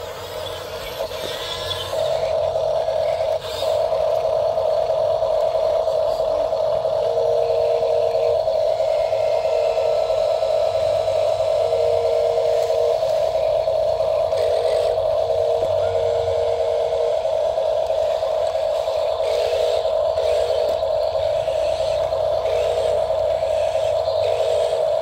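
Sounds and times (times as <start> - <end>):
lower motor whine: 0.0 - 25.0
toy truck motor whining: 0.0 - 25.0.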